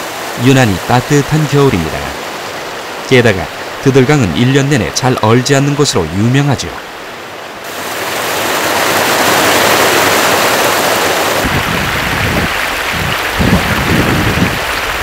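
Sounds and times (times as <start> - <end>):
river water pouring over a weir: 0.0 - 15.0
wind buffeting microphone: 11.4 - 15.0.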